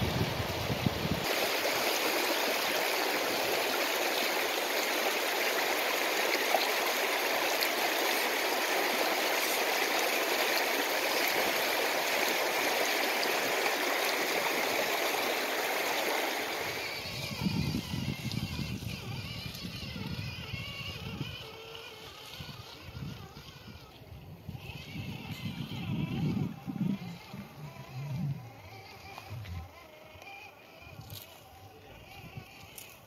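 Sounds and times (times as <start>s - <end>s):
river water rushing over stones: 0.0s - 17.1s.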